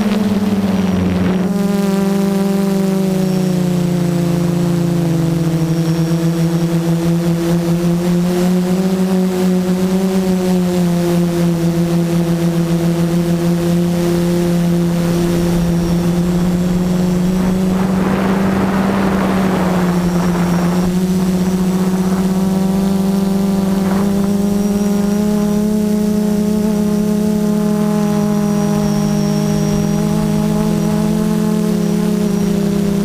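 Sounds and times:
rush of air noise: 0:00.0 - 0:01.8, 0:14.8 - 0:25.9
quadcopter motors humming: 0:00.0 - 0:33.0.

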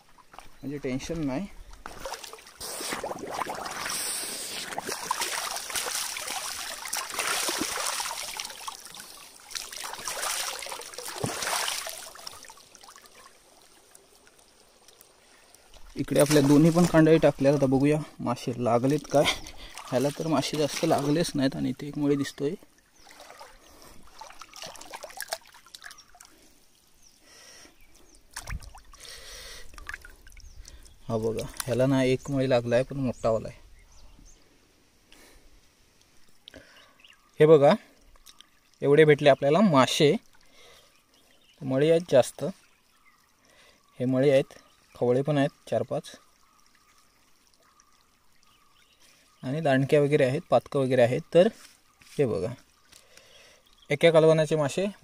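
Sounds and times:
stream water splashing: 0:00.0 - 0:33.3, 0:35.8 - 0:55.0
heavy water splash: 0:01.8 - 0:13.3, 0:15.8 - 0:17.6, 0:23.0 - 0:26.3.

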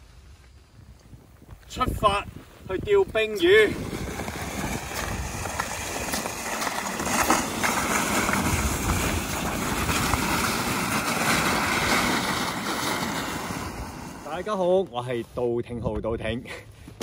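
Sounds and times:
wind rumbling on microphone: 0:00.0 - 0:16.5
sled scraping across ice: 0:02.9 - 0:14.9.

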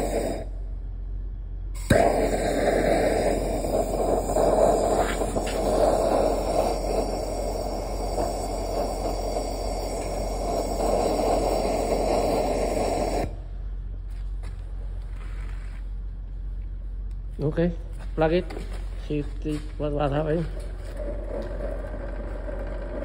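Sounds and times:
gas torch roaring: 0:00.0 - 0:14.0, 0:20.0 - 0:23.0.

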